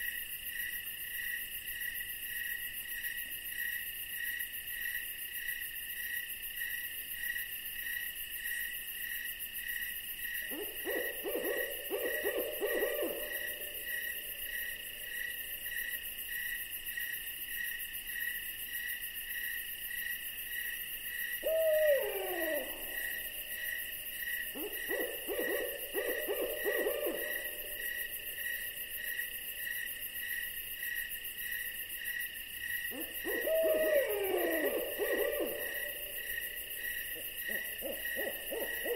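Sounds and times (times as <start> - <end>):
crickets chirping: 0.0 - 38.9
owl calling: 10.5 - 14.1, 21.4 - 23.7, 24.5 - 28.0, 32.9 - 38.9.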